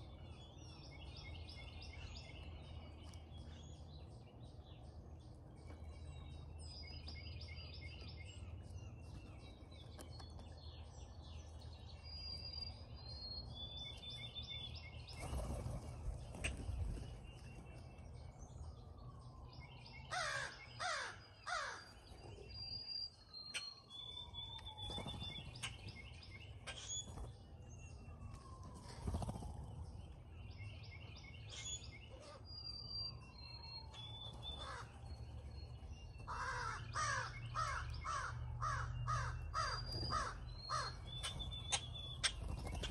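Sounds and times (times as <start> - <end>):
small birds singing: 0.0 - 42.9
crows cawing: 20.1 - 21.9, 34.6 - 34.9, 36.3 - 41.0.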